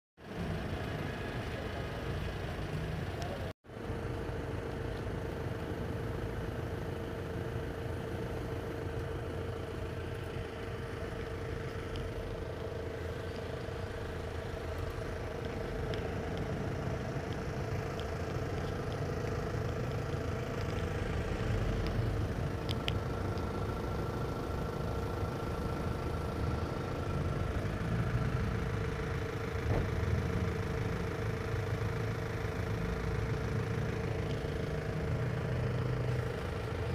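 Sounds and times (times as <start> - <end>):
minibus engine idling: 0.2 - 36.9.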